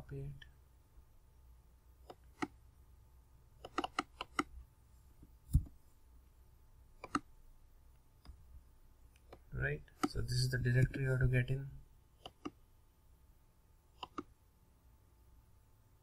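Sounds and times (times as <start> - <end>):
computer keyboard and mouse clicks: 3.6 - 4.5, 7.0 - 7.3, 12.2 - 12.6, 14.0 - 14.3.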